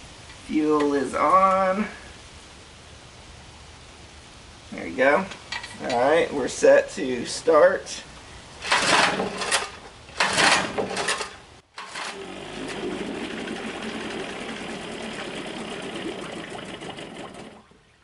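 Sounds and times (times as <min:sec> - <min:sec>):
recoil starter cord pull: 0:08.6 - 0:12.3
outboard motor running: 0:11.8 - 0:17.9.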